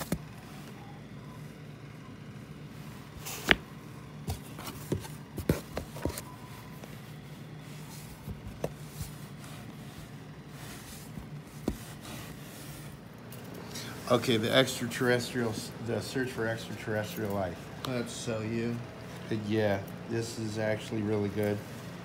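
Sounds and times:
steady low hum: 0.0s - 22.0s
books tapping and knocking: 3.2s - 6.3s, 8.0s - 9.2s, 10.8s - 12.4s.

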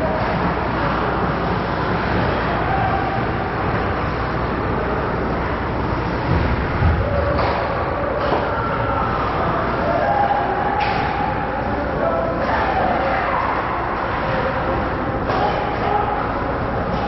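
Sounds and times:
ice rink crowd noise: 0.0s - 17.0s.

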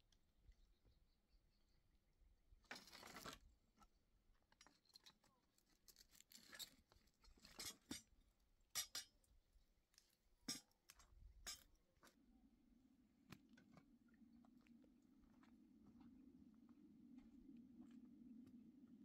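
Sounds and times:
twigs crackling in a fire: 5.0s - 7.7s.

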